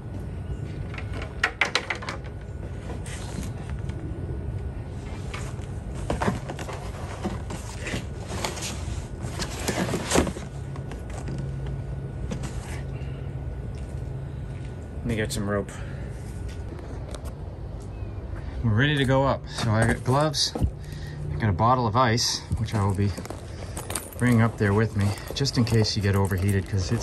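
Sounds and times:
steady low hum: 0.0 - 27.0
cardboard scraping and crinkling: 5.1 - 11.5.

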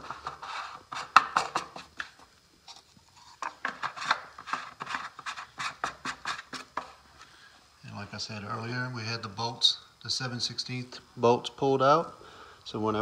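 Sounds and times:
rubbing scrapes: 0.0 - 2.1, 2.7 - 7.0.

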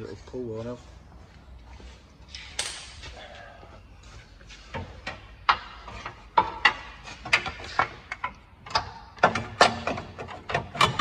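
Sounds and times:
metal knocks and clanks: 4.7 - 11.0.

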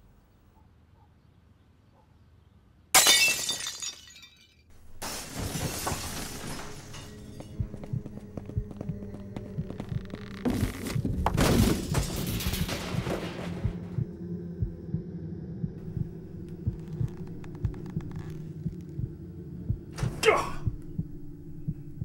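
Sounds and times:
low heartbeat-like thumps: 7.4 - 22.0
steady drone: 13.7 - 22.0.

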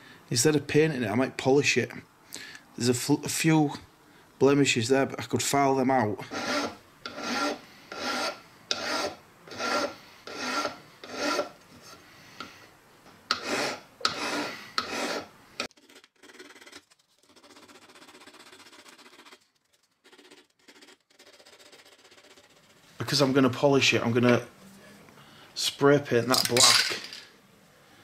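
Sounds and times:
file rasping on metal: 6.3 - 11.6, 13.3 - 19.4
abrasive paper rubbing metal: 13.6 - 23.3.

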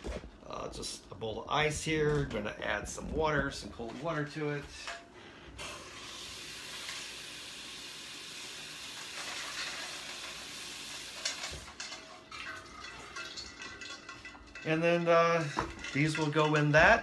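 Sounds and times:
tap water running into bowl: 6.0 - 14.7
ice clinking and knocking: 11.0 - 17.0.

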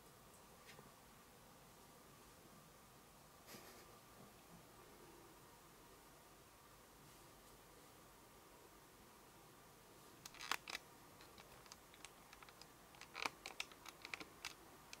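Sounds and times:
cat chewing on wire: 10.2 - 15.0.

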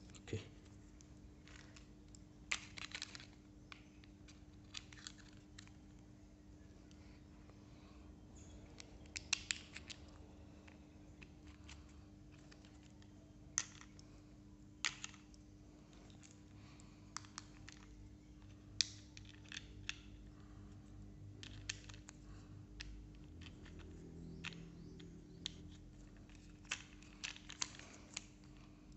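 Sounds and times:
faint low hum: 0.0 - 28.9
plastic toy parts clicking: 2.5 - 5.8, 8.8 - 10.1, 17.2 - 20.2, 21.4 - 22.2, 22.8 - 28.5.

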